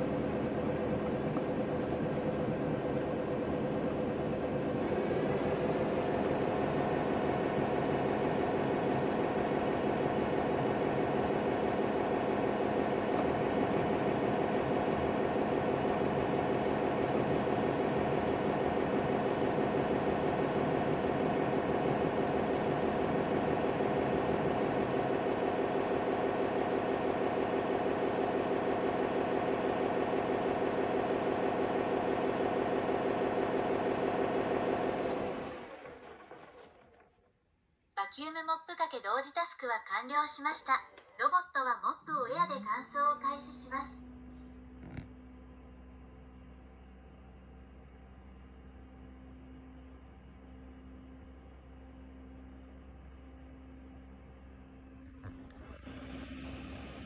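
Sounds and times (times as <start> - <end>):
motor hum: 0.0 - 37.1, 43.0 - 57.0
spinning mops scrubbing: 33.0 - 37.1.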